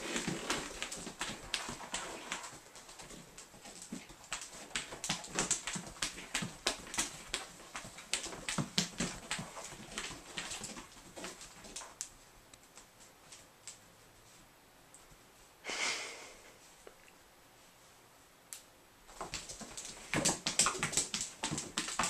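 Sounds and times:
cat paws tapping on carpet: 0.0s - 14.4s, 19.1s - 22.0s.

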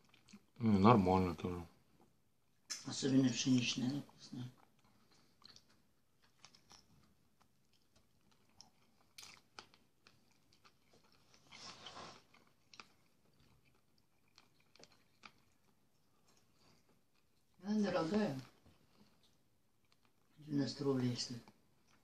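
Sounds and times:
faint chewing: 0.0s - 22.0s.

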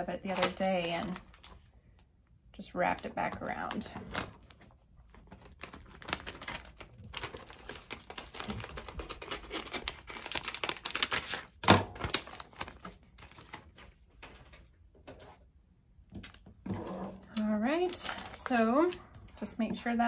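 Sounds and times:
plastic sheet crinkling: 0.0s - 1.7s, 2.8s - 14.6s, 16.2s - 20.0s.

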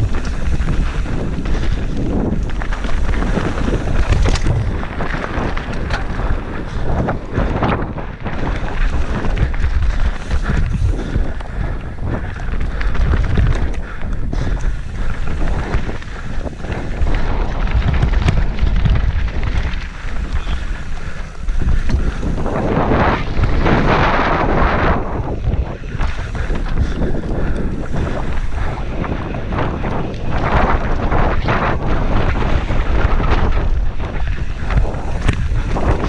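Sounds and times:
bike tyres rattling on stony trail: 0.0s - 36.0s
wind buffeting microphone: 0.0s - 36.0s
small knocks from bike: 0.1s - 7.8s, 8.4s - 22.4s.

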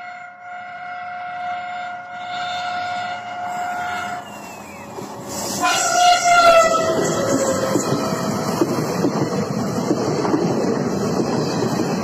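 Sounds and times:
train horn blasts: 0.0s - 4.3s, 5.5s - 7.8s
train wheels rumbling on rail: 0.0s - 12.0s.

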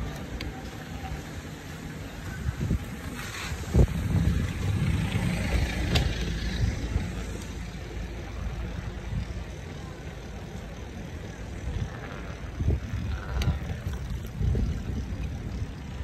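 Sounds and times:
wheels rumbling on road: 0.0s - 16.0s
wind buffeting microphone: 2.2s - 7.6s, 11.3s - 16.0s.

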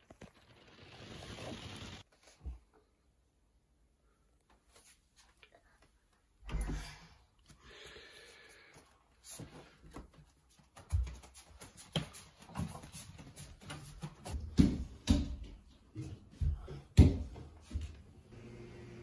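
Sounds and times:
footsteps on wooden floor: 9.4s - 18.1s.

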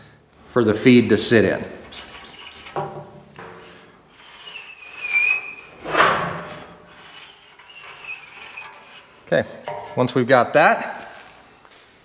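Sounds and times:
marker squeaking on metal: 1.7s - 10.2s
short scraping rub: 1.8s - 10.2s.

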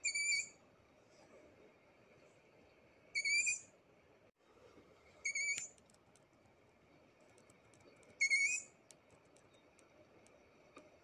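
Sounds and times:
owl chick whistling call: 0.0s - 0.6s, 3.2s - 3.7s, 5.2s - 5.7s, 8.2s - 8.7s.

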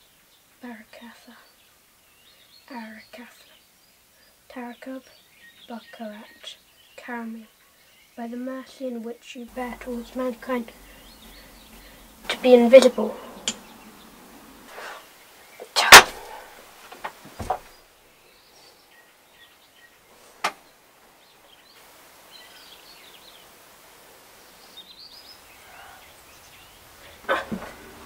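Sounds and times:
high bird-like chirps: 9.6s - 14.7s.

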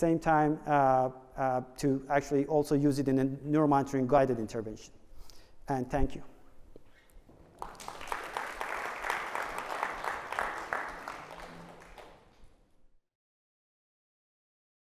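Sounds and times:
audience applauding: 7.3s - 12.6s.

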